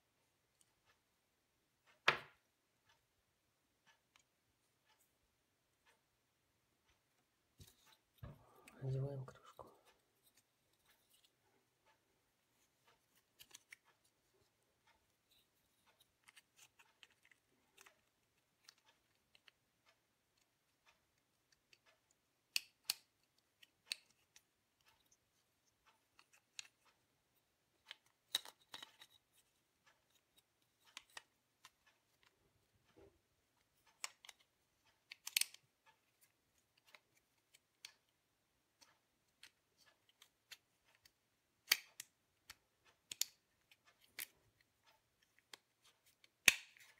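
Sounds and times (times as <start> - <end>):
plastic parts clicking: 12.8 - 14.1, 14.8 - 19.6, 21.5 - 25.2, 27.8 - 38.1, 38.8 - 46.9.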